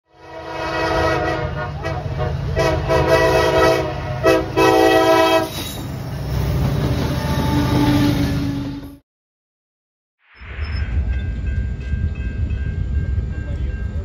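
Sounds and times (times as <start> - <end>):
locomotive air horn blasts: 0.1 - 5.6
train rumbling: 0.2 - 9.0, 10.4 - 14.0.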